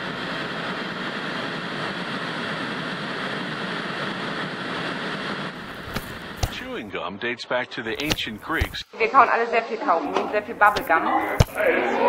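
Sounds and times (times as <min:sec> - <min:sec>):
television static hiss: 0:05.6 - 0:12.0.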